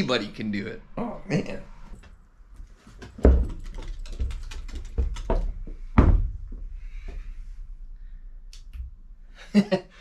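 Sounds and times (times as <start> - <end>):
heavy thumps: 3.0 - 7.3.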